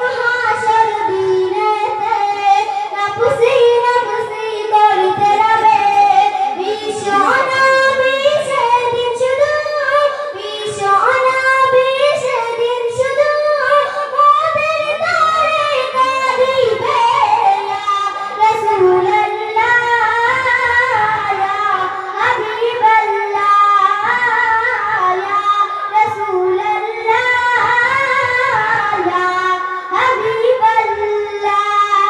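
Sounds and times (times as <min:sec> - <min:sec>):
girl singing into a microphone: 0:00.0 - 0:32.0.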